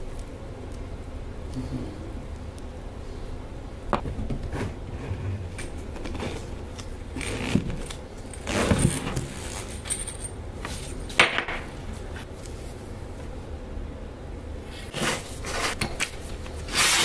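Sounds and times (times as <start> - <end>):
metal parts clicking and rattling: 7.2 - 10.4.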